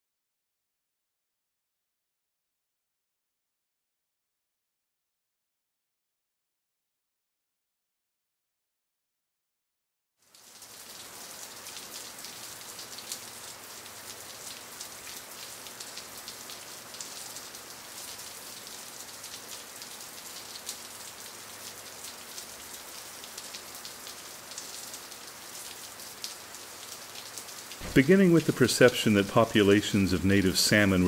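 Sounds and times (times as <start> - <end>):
water crackling patter: 10.4 - 31.0
water pops: 27.8 - 28.6.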